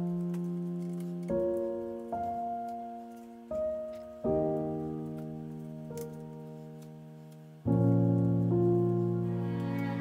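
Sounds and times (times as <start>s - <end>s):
piano chord ringing: 7.6s - 10.0s.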